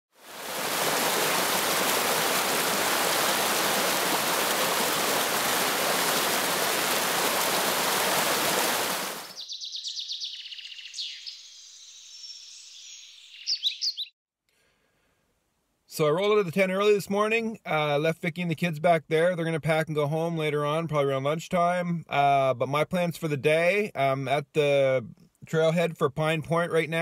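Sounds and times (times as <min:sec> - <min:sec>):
waterfall rushing water: 0:00.2 - 0:09.4
songbird singing: 0:02.3 - 0:14.2.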